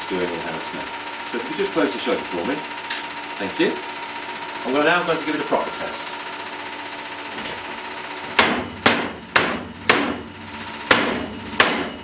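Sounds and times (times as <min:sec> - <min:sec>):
steady electrical hum: 0:00.0 - 0:12.0
hard knocks on metal: 0:08.2 - 0:12.0.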